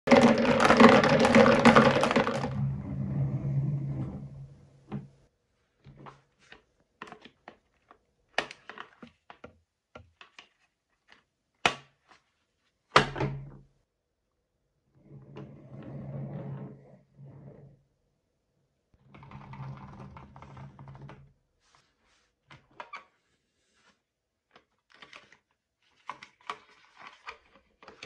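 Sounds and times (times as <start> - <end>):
plastic toy truck clicks and knocks: 0.1 - 2.6, 7.0 - 12.0
marbles rolling down wooden track: 0.1 - 4.0.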